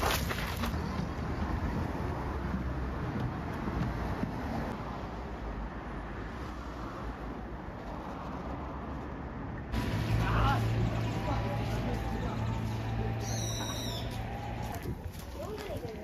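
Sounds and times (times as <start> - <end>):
low outdoor rumble: 9.7 - 15.1.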